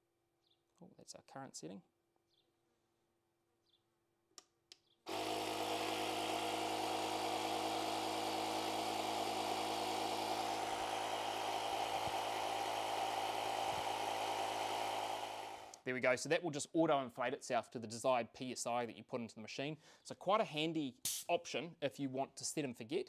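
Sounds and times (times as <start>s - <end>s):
air compressor running: 5.1s - 15.8s.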